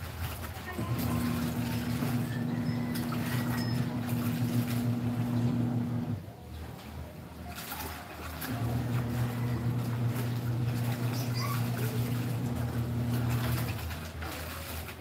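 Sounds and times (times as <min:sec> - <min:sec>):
wet cloth being worked: 0:00.0 - 0:06.2, 0:07.3 - 0:15.0
water sloshing in a basin: 0:00.0 - 0:15.0
steady machine hum: 0:00.8 - 0:06.2, 0:08.6 - 0:13.8.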